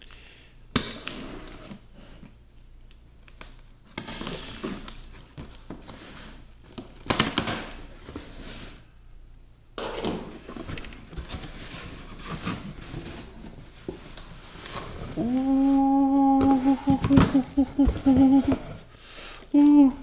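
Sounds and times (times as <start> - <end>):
cardboard flaps scraping: 10.4 - 18.9.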